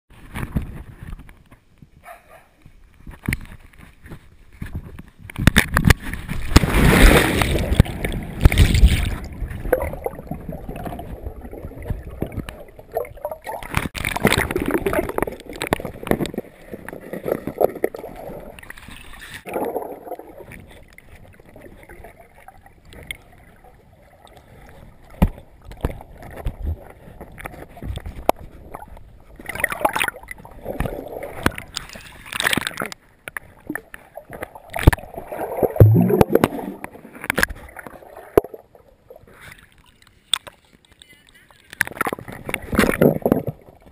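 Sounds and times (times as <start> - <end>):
loud splash into water: 6.5 - 10.2
muffled underwater bubbling: 7.4 - 18.7, 19.4 - 31.8, 33.5 - 39.3.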